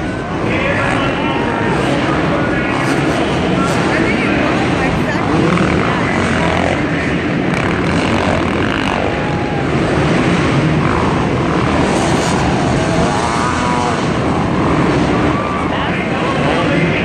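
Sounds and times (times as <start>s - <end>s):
motocross bike engines revving: 0.0s - 17.0s.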